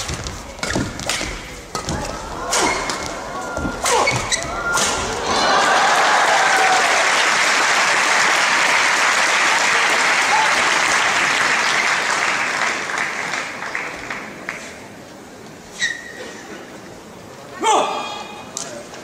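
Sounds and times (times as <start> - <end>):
crowd applauding: 5.2 - 14.3.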